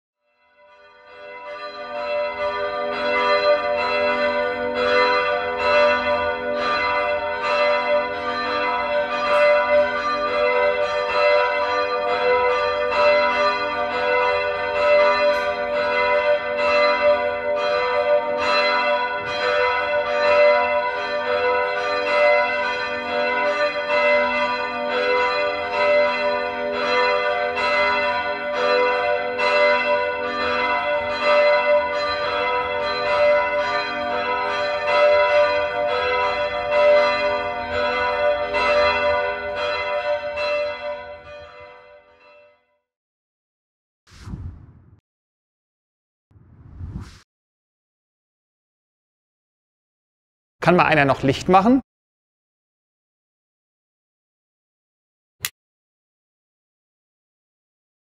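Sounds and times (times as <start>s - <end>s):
church bells ringing: 0.4s - 42.7s.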